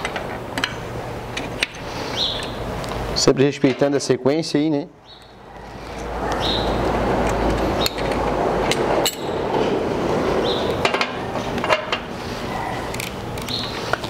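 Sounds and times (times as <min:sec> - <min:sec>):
steady background noise: 0:00.0 - 0:14.0
hand tools clinking on metal: 0:07.8 - 0:09.4.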